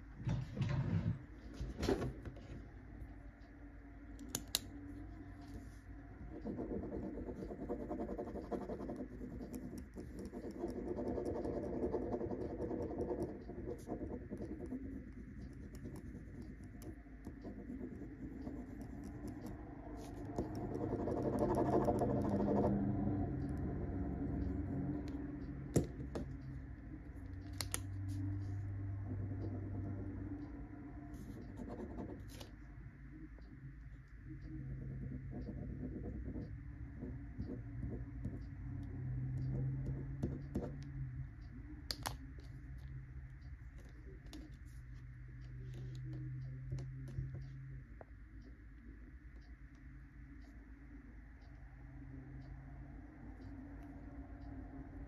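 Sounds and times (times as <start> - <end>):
pen clicks: 4.2 - 4.7, 27.4 - 27.9
pens scribbling on paper: 5.5 - 22.8.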